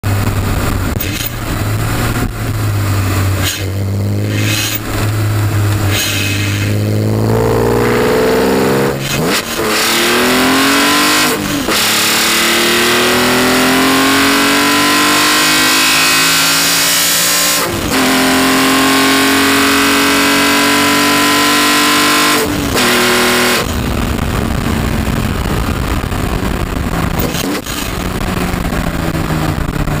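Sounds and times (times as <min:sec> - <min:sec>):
car engine intake noise accelerating: 0:00.2 - 0:20.8.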